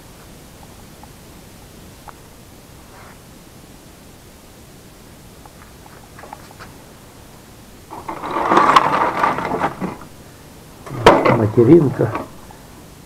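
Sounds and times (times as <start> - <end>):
circuit boards and wires clattering: 7.9 - 10.1, 10.8 - 12.4.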